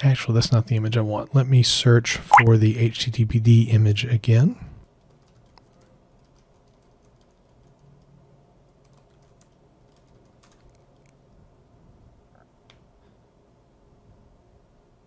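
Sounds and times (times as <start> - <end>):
faint keyboard typing: 4.8 - 11.4.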